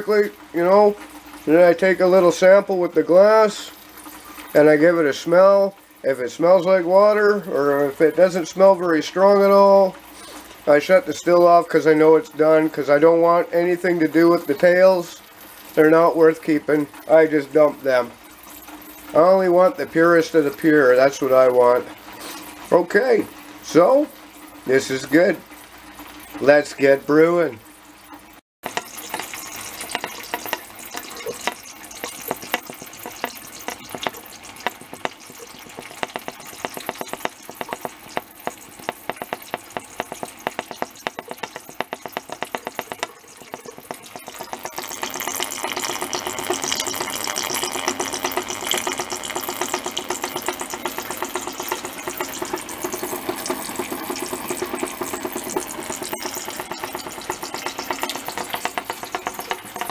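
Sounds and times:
liquid trickling into glass jar: 28.2s - 59.9s.

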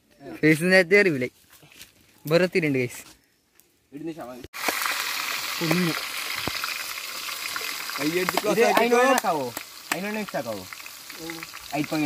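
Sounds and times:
onions sizzling in hot oil: 4.6s - 12.0s.

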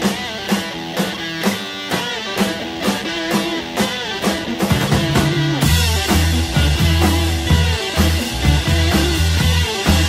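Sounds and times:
bass line: 4.4s - 10.0s.

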